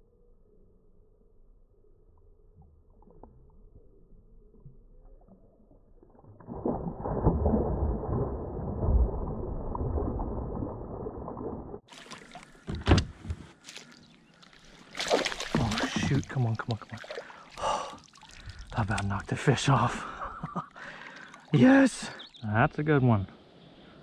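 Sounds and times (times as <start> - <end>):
deep muffled water splashing: 2.5 - 12.9, 13.6 - 22.4
sharp splashes at water surface: 11.8 - 12.6, 13.6 - 19.3.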